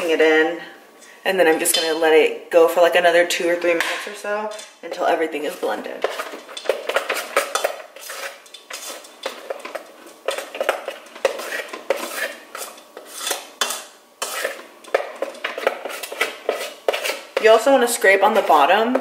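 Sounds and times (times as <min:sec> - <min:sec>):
utensil scraping mixer bowl: 0:05.4 - 0:19.0.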